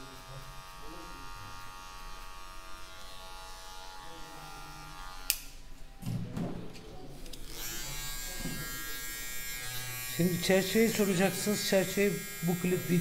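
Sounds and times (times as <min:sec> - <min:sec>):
electric hair clipper buzzing: 0:00.0 - 0:05.6, 0:07.4 - 0:13.0.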